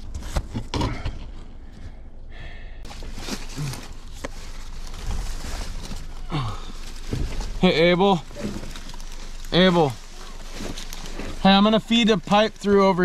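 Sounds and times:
rustling on dirt and straw: 2.9s - 13.0s
person grunting: 6.2s - 6.8s.

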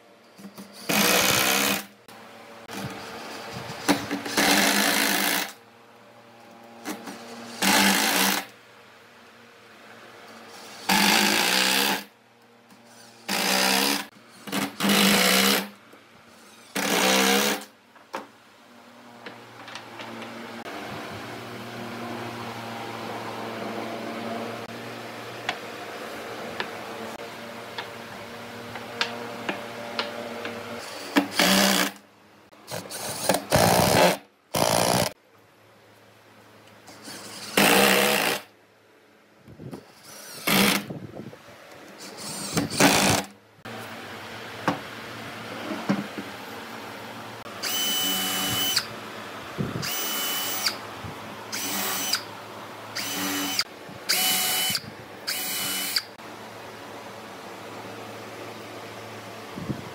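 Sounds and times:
drill driving screws into wood: 0.7s - 2.0s, 3.8s - 5.6s, 6.9s - 8.5s, 10.6s - 12.1s, 13.1s - 15.8s, 16.6s - 17.7s, 30.8s - 32.0s, 32.7s - 35.2s, 37.0s - 38.5s, 40.0s - 40.9s, 42.0s - 43.3s, 47.6s - 48.9s, 49.8s - 50.8s, 51.5s - 52.3s, 53.0s - 56.1s.

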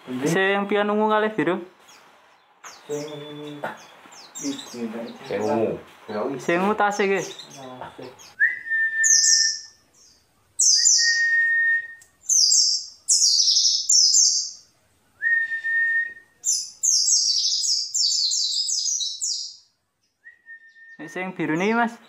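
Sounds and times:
birds twittering: 0.0s - 15.2s, 16.3s - 22.0s
long whistled notes: 8.4s - 9.8s, 10.6s - 12.1s, 15.2s - 16.3s.

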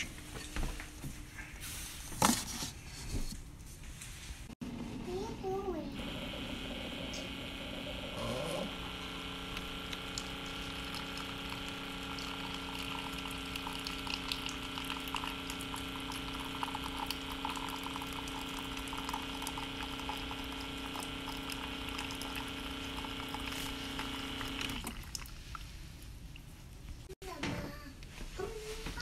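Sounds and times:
water dispenser humming: 4.6s - 25.6s
water pouring into a paper cup: 9.0s - 25.7s.

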